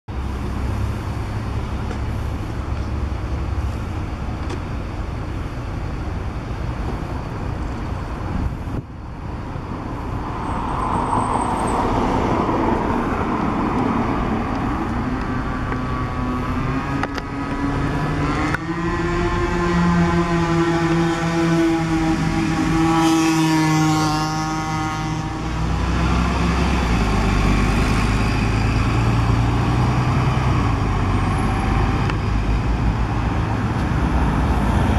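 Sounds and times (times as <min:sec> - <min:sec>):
street traffic: 0:00.1 - 0:34.9
bus engine revving: 0:11.0 - 0:34.9.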